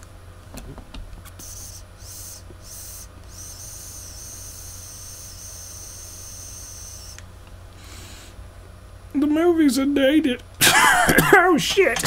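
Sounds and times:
butane lighter hissing: 1.4 - 7.2.

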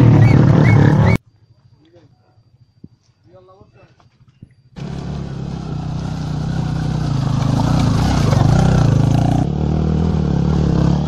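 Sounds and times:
motorcycles riding past: 4.8 - 11.0.

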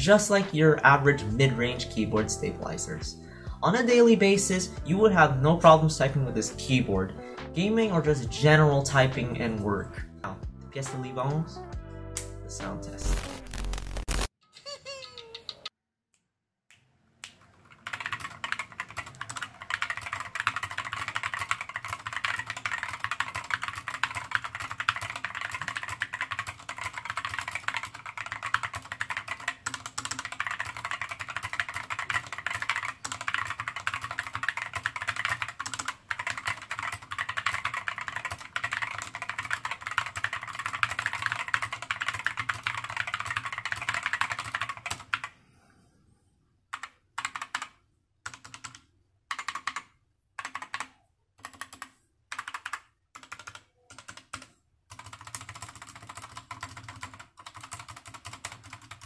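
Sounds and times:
fast typing on mechanical keyboard: 17.4 - 45.3, 46.7 - 59.0.

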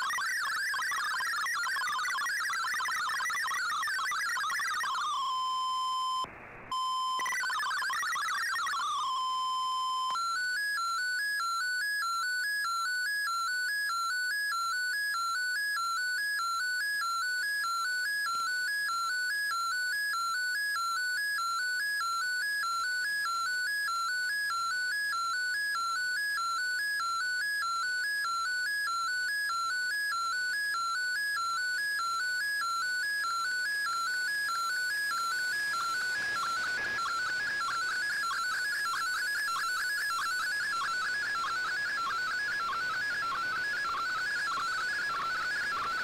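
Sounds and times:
electronic tone alternating pitches: 0.0 - 13.5, 32.0 - 46.0.

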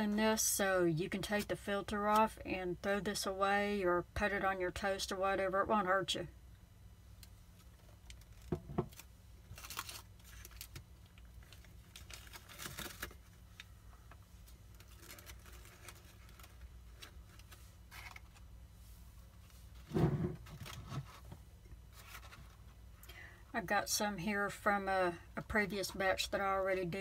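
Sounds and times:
paper coffee filter crinkling: 7.6 - 22.8.

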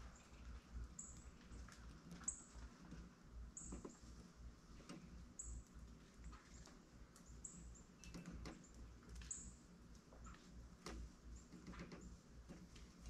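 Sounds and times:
birds clicking at a feeder: 4.8 - 10.1, 10.7 - 13.0.

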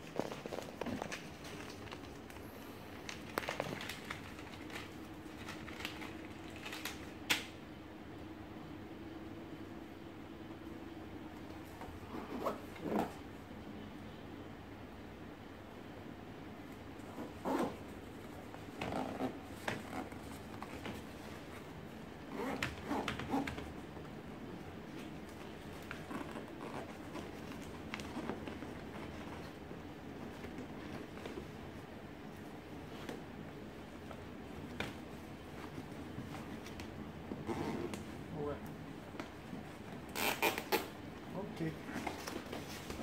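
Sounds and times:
soft crinkles: 0.0 - 7.2, 24.5 - 40.8
faint steady hum: 0.0 - 43.0.

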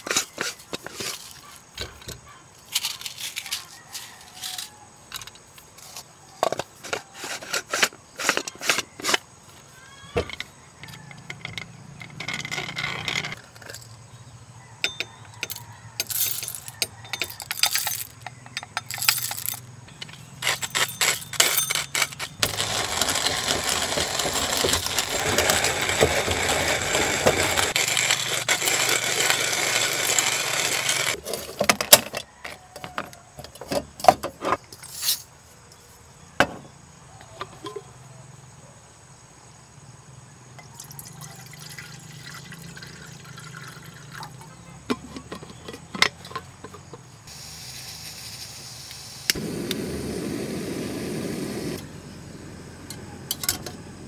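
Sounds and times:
grinder clicks and rattles: 0.0 - 9.3, 10.2 - 14.0, 14.8 - 34.9, 44.9 - 47.0
coffee beans grinding: 10.2 - 13.9, 15.4 - 31.2.

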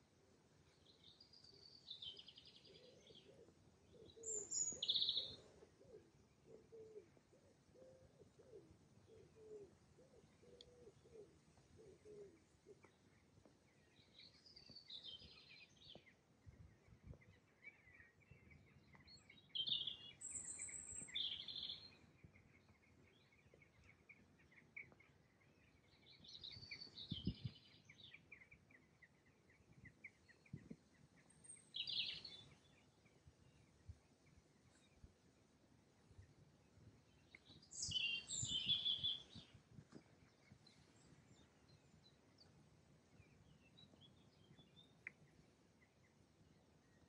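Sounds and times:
birdsong chirps: 0.0 - 47.0
low repeated cooing: 2.6 - 12.9.

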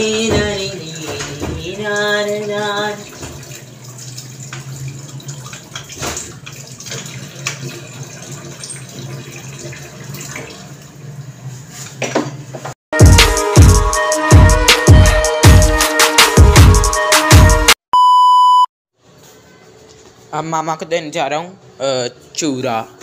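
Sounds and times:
tap running into sink: 4.4 - 7.8
electronic music with heavy beat: 13.0 - 17.8.

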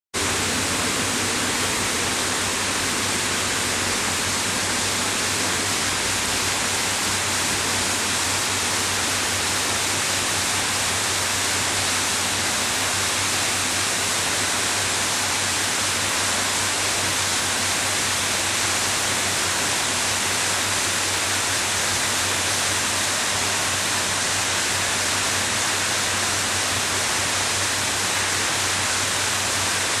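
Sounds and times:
running water rushing: 0.2 - 30.0.

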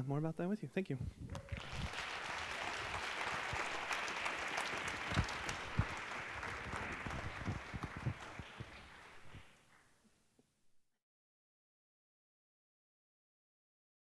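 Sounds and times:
audience applauding: 1.3 - 9.9.

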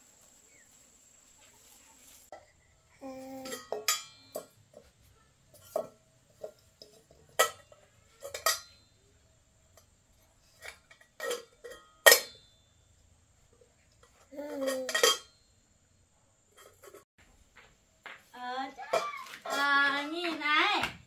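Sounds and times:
hard objects clinking: 3.4 - 12.7.

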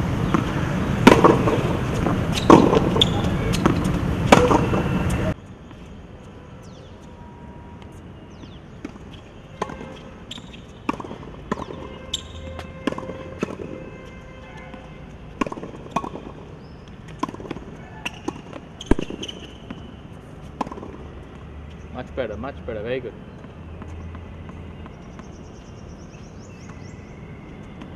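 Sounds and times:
tennis ball hit by rackets: 0.2 - 5.2, 8.4 - 13.9, 14.6 - 21.1
tennis ball bouncing on court: 0.2 - 5.8, 7.8 - 21.8, 22.8 - 27.9.

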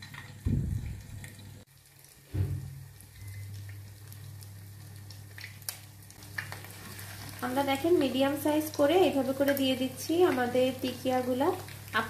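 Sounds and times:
crackles: 0.0 - 12.0
dull low thump: 0.4 - 1.0
fish sizzling in oil: 1.0 - 12.0.

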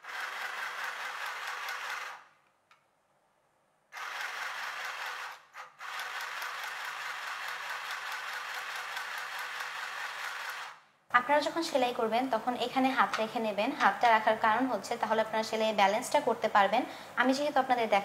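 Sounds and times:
sewing machine stitching: 0.0 - 2.4, 3.9 - 10.8.

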